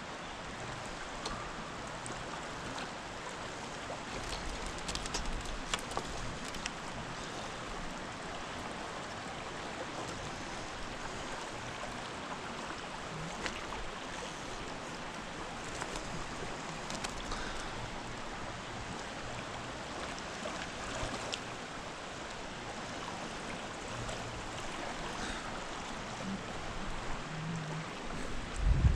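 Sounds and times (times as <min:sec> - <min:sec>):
stream water rushing: 0:00.0 - 0:28.9
faint clicks: 0:04.2 - 0:06.8, 0:15.6 - 0:17.9.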